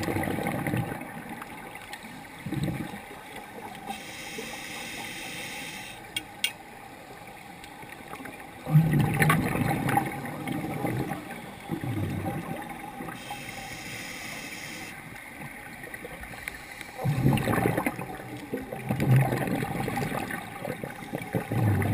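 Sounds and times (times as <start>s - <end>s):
exhaled bubbles gurgling underwater: 0.0s - 6.1s, 6.9s - 21.9s
regulator inhalation hiss: 3.9s - 6.1s, 13.2s - 15.0s.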